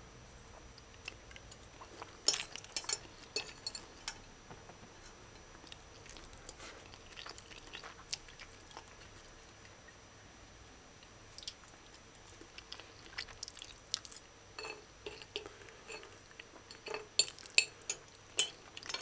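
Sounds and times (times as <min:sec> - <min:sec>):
person chewing: 0:05.6 - 0:09.7, 0:11.3 - 0:19.0.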